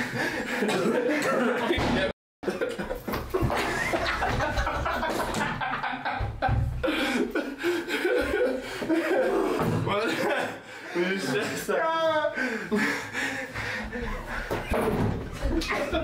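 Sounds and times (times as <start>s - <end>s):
men laughing and hooting: 2.5s - 14.8s.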